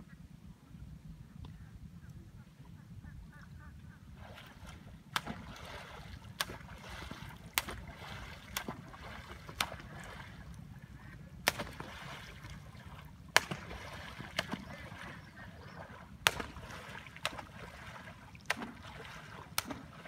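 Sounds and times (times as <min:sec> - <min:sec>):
wind rumble on microphone: 0:00.0 - 0:17.9
pole slapping water: 0:04.2 - 0:20.0.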